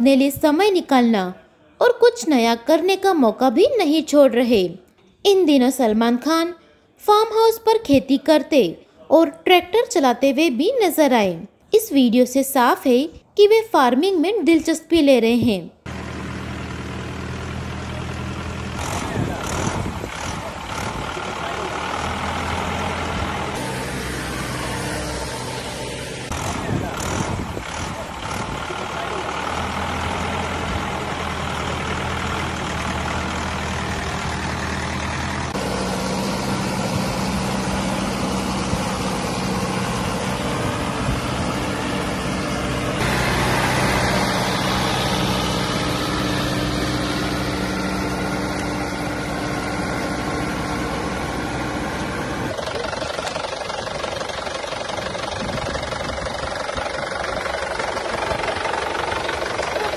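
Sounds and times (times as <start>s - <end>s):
tractor diesel engine running: 15.0s - 59.9s.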